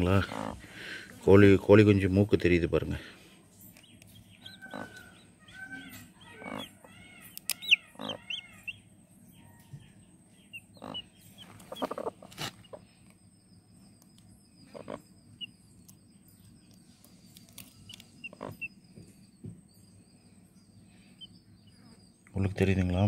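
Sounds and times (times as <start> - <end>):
hen calling: 0.0 - 0.8, 4.4 - 8.9, 10.4 - 12.8, 14.6 - 15.6, 17.9 - 18.8.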